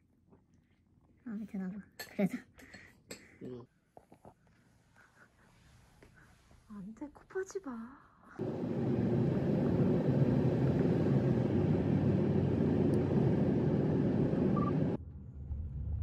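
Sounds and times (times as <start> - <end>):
low cabin rumble: 8.4 - 16.0.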